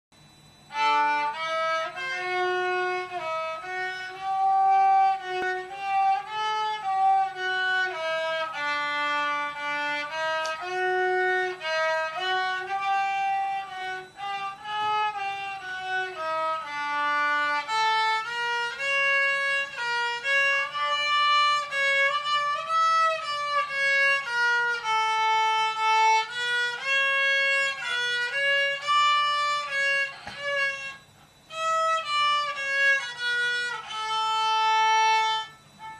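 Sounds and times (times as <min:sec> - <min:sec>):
solo violin melody: 0:00.7 - 0:35.9.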